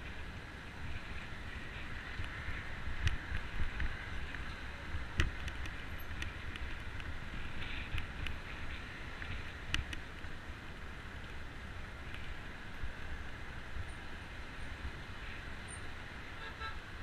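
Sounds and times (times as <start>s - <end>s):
road traffic noise: 0.0s - 17.0s
bicycle and mount rattling: 0.9s - 10.4s.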